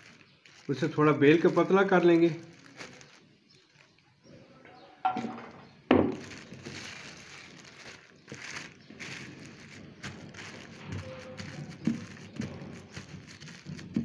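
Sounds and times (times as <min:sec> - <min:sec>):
plastic sheet rustling: 0:00.0 - 0:04.4, 0:05.1 - 0:14.0.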